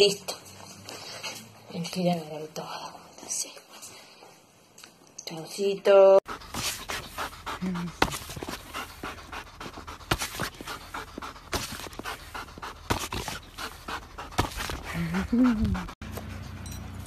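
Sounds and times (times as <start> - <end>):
dog panting: 6.2 - 17.0.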